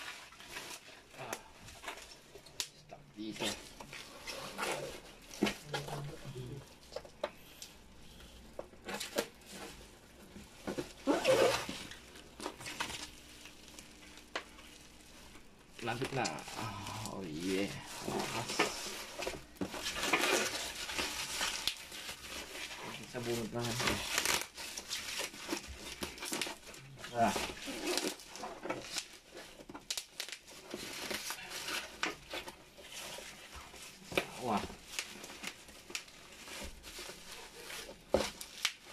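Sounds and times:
crinkles and taps: 5.0s - 11.0s, 11.7s - 16.5s, 18.0s - 38.9s
cardboard box tearing: 10.7s - 13.2s, 15.9s - 33.4s.

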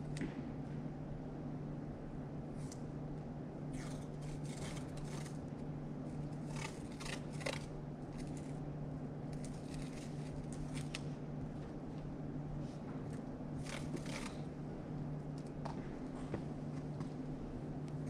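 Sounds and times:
steady low hum: 0.0s - 18.0s
crisp crinkling and clicking: 3.8s - 8.6s, 9.3s - 11.1s, 13.1s - 14.5s.

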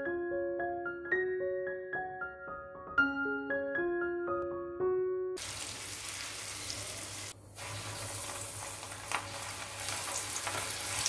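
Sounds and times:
hot oil sizzling in a wok: 5.4s - 11.0s.

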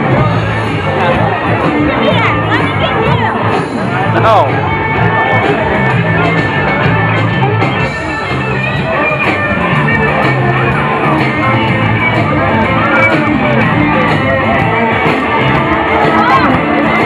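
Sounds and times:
electric guitar: 0.0s - 17.0s
live rock band playing: 0.0s - 17.0s
repeating bass line: 0.0s - 17.0s.

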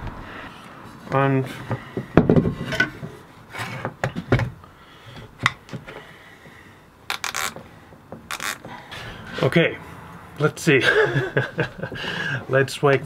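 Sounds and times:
knocks on wooden workbench: 2.1s - 2.6s.

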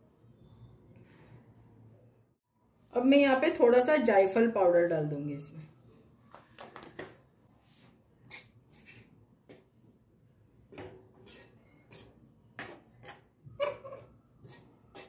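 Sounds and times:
metal spoon scraping steel pan: 8.3s - 9.1s, 11.1s - 15.0s.

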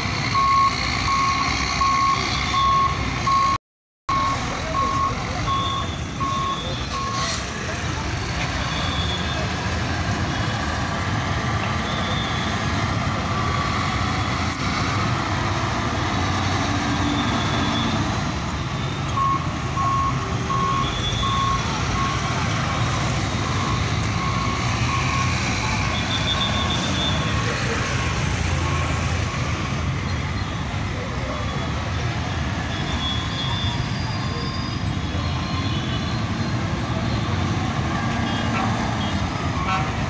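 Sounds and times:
traffic: 0.0s - 40.0s
reversing alarm beeping: 0.3s - 7.1s, 19.1s - 22.4s, 23.3s - 27.2s.

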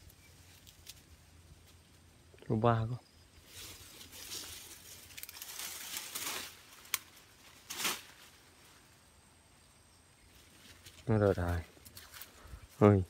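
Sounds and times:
leaves and twigs rustling: 0.0s - 13.0s
twig snapping: 4.2s - 8.2s, 11.8s - 12.4s.

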